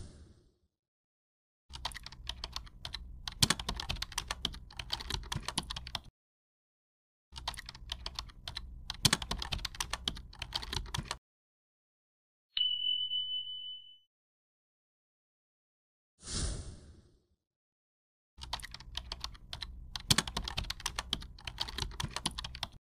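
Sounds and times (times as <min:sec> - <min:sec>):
keyboard key clicks: 0:01.7 - 0:06.1, 0:18.4 - 0:22.8.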